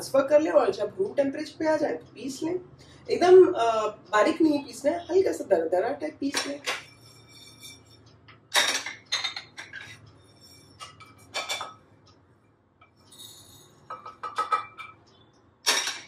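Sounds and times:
pan and glass clinking: 0:06.4 - 0:11.8, 0:13.1 - 0:15.0, 0:15.7 - 0:16.0
wooden spatula scraping pan: 0:06.8 - 0:08.0.

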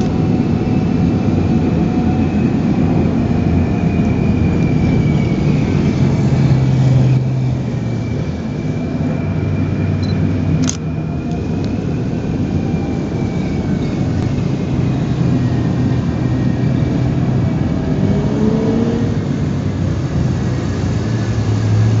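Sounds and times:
tracked vehicle engine humming: 0:00.0 - 0:22.0.

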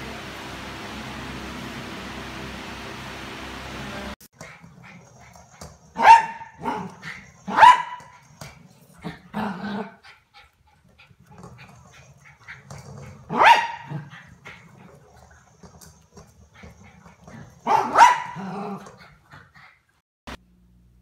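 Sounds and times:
small dog barking: 0:06.0 - 0:08.2, 0:13.3 - 0:14.1, 0:17.6 - 0:18.9.

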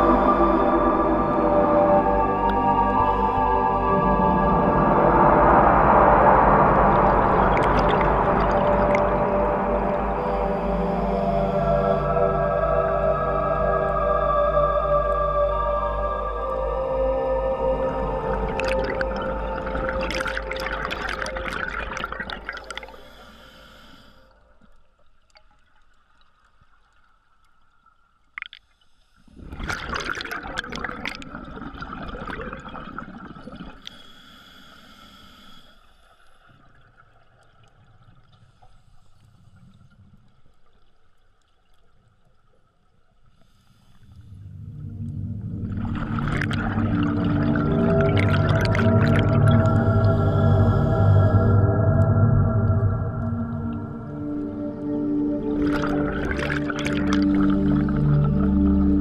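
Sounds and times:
scuba regulator bubbles underwater: 0:00.0 - 0:14.2, 0:15.1 - 0:26.7, 0:29.2 - 0:35.6, 0:43.3 - 0:59.0
ambient music: 0:00.0 - 0:24.8, 0:44.2 - 0:59.0.

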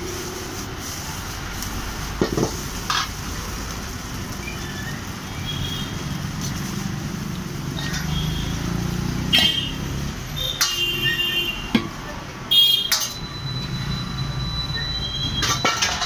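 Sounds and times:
steady hiss: 0:00.0 - 0:07.8
vehicle engine rumble: 0:00.0 - 0:10.8.

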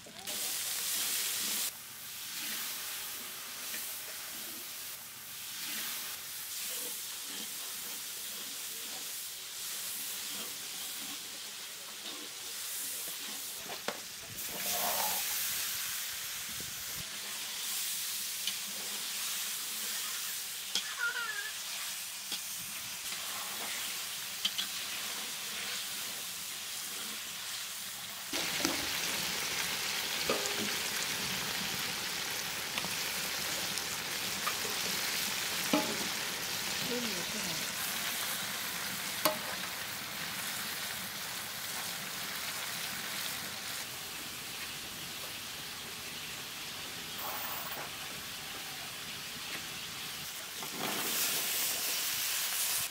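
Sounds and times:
fish frying in oil: 0:00.0 - 0:47.2
spatula scraping a pan: 0:05.4 - 0:15.5, 0:18.4 - 0:26.2.

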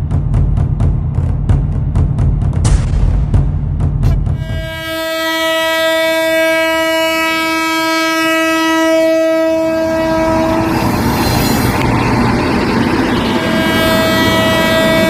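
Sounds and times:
moving train rumble: 0:00.0 - 0:15.0
locomotive horn blast: 0:04.0 - 0:11.9, 0:12.8 - 0:15.0.

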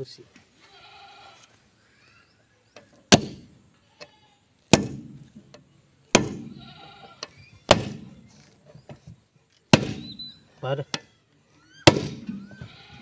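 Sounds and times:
sledgehammer striking steel: 0:04.7 - 0:05.3, 0:06.1 - 0:06.5, 0:09.7 - 0:10.1, 0:11.9 - 0:12.4.

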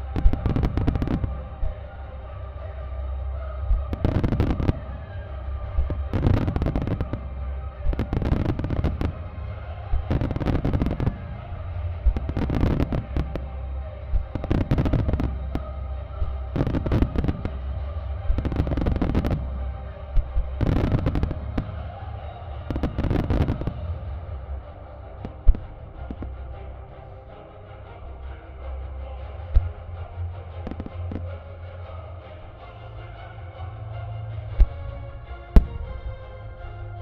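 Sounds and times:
show music: 0:00.0 - 0:37.0
fireworks launching and bursting: 0:00.1 - 0:01.8, 0:03.7 - 0:21.9, 0:22.5 - 0:24.0.

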